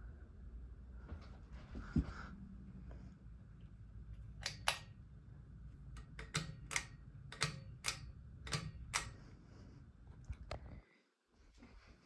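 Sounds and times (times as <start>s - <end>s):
pull-chain switch clicks: 4.4s - 5.0s, 5.9s - 9.2s.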